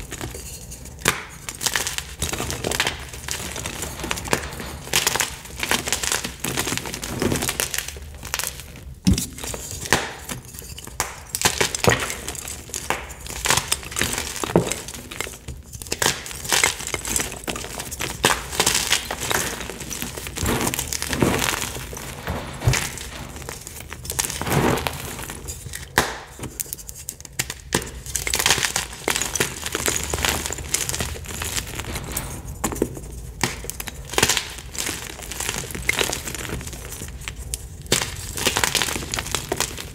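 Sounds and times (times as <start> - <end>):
dry powdery rustling: 17.6 - 26.9.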